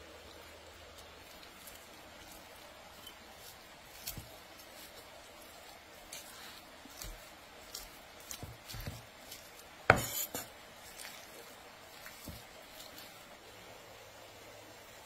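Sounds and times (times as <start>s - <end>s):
cleaver chopping meat on wood: 8.2s - 10.5s.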